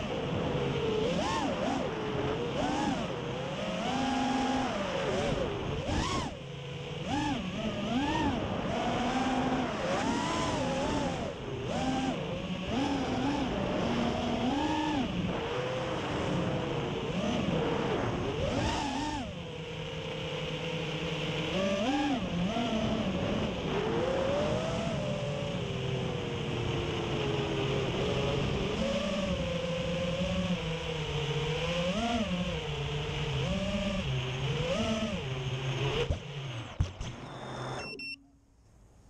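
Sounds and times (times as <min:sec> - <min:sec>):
quadcopter motors whining: 0:00.0 - 0:38.2.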